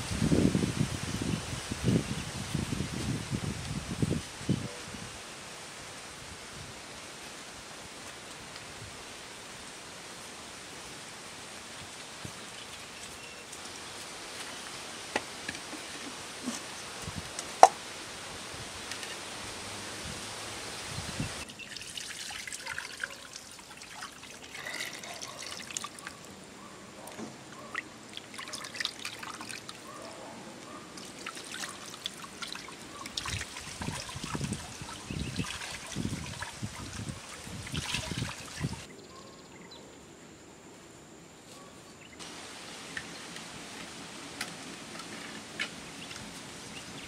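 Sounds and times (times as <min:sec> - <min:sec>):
water splashing and dripping: 0:21.4 - 0:26.3, 0:27.1 - 0:38.9.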